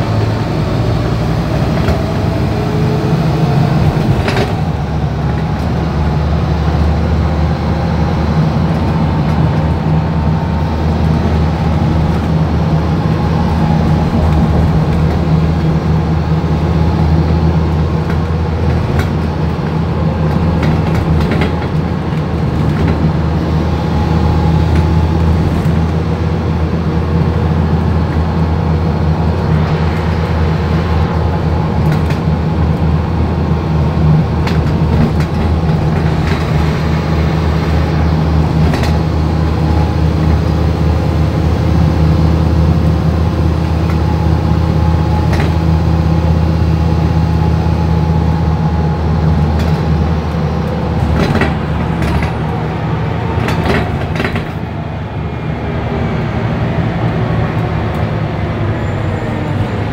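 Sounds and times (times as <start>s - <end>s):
bus engine drone: 0.0s - 59.9s
road noise: 0.0s - 59.9s
sharp clicks and knocks: 17.8s - 23.1s, 38.6s - 39.0s, 45.2s - 45.7s, 50.7s - 52.6s, 53.4s - 54.6s.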